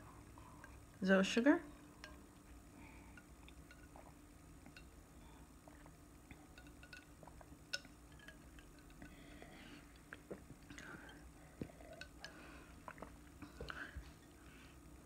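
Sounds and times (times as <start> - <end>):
sipping and swallowing drink: 3.0 - 14.5.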